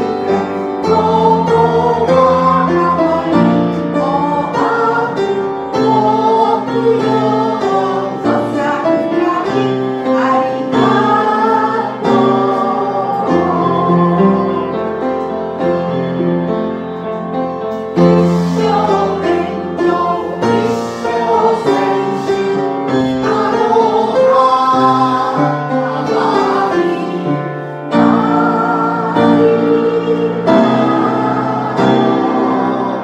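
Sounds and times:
group of voices singing: 0:00.0 - 0:15.3, 0:18.0 - 0:33.0
instrumental accompaniment: 0:00.0 - 0:33.0.

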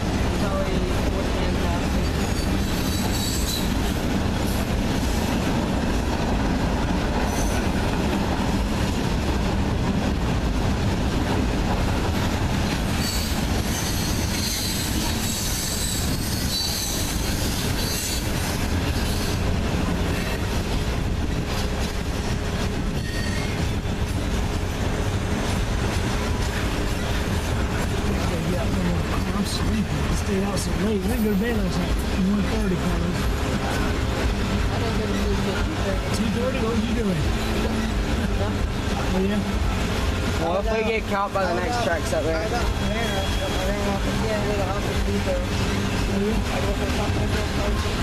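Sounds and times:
freight train rolling on rails: 0:00.0 - 0:48.0
train wheels squealing: 0:02.0 - 0:04.0, 0:07.3 - 0:07.7, 0:13.0 - 0:19.4, 0:22.9 - 0:24.2, 0:42.6 - 0:44.0.

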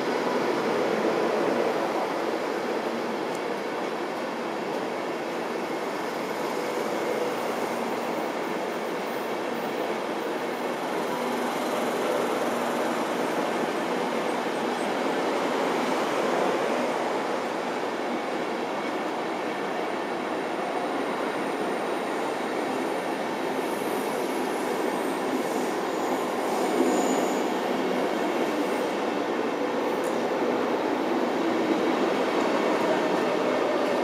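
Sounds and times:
train wheels rumbling on rail: 0:00.0 - 0:34.0
faint high squeals: 0:25.6 - 0:27.8.

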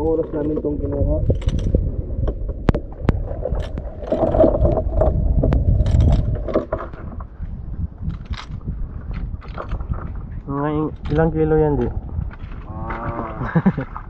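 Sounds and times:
water and wind rumble: 0:00.0 - 0:14.0.

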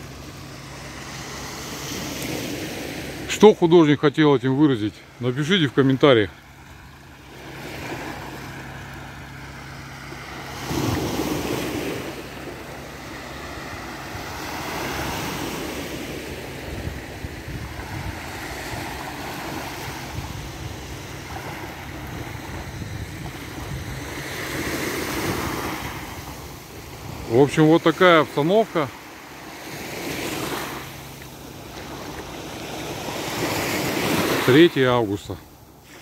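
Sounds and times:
waves washing on sandy shore: 0:00.0 - 0:36.0
wind on microphone: 0:16.4 - 0:27.2.

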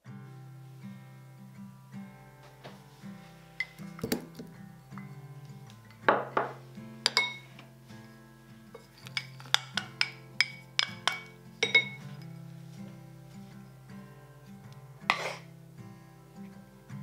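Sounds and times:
soft acoustic guitar music: 0:00.0 - 0:17.0
utensil clinking against bowl: 0:06.1 - 0:07.7, 0:08.7 - 0:12.2.

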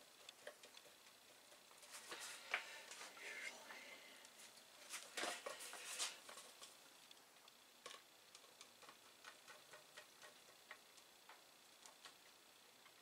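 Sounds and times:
fingers tapping wire bundle: 0:07.8 - 0:13.0.

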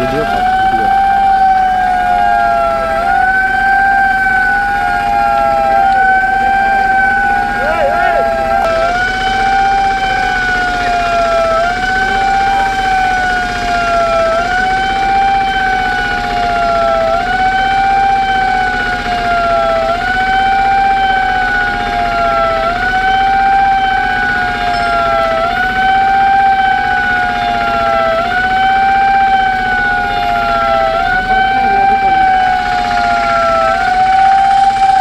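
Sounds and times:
siren wailing: 0:00.0 - 0:35.0.

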